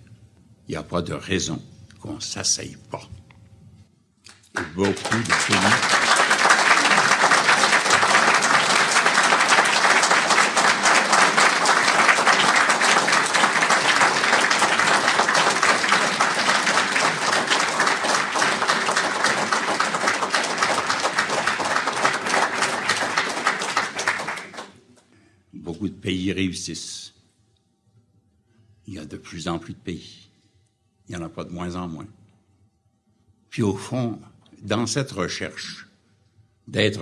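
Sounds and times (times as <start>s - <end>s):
audience applauding: 4.4s - 24.8s.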